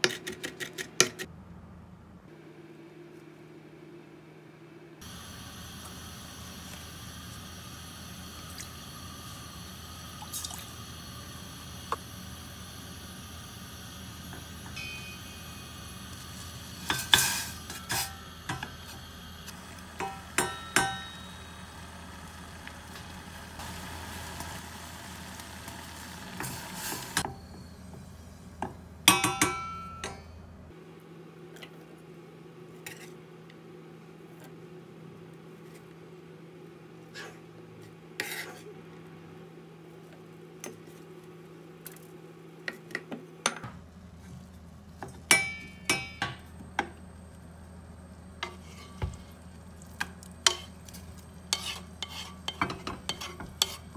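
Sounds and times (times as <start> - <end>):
steady hum: 1.3 - 31.5
wooden spoon stirring: 49.8 - 53.9.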